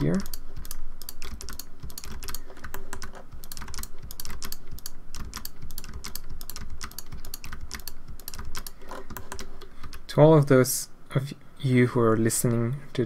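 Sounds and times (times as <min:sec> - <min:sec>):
keyboard keys clicking: 0:00.0 - 0:10.0.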